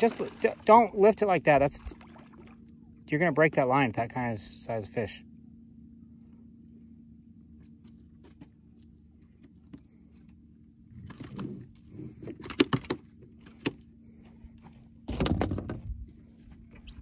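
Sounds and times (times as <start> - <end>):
fish flopping on a boat deck: 0.0 - 2.9
steady low hum: 0.0 - 17.0.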